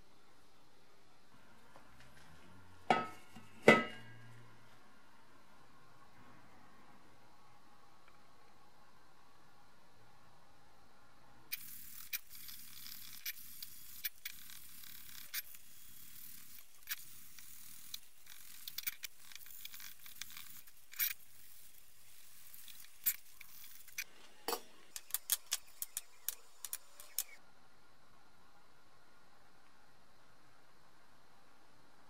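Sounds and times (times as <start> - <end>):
small metal parts clicking on wood: 11.5 - 24.1, 24.9 - 27.4.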